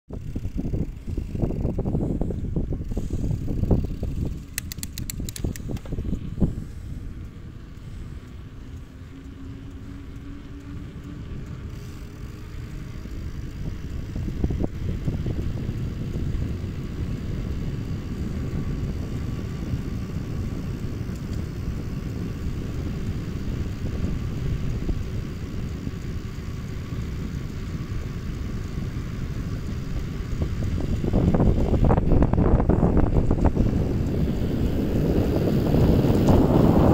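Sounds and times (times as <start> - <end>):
wind buffeting microphone: 0.1 - 36.9.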